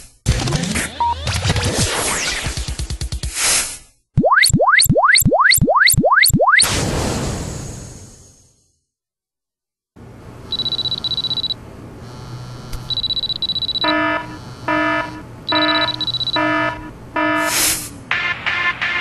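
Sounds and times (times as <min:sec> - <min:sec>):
high buzzing tone: 0:10.6 - 0:17.6.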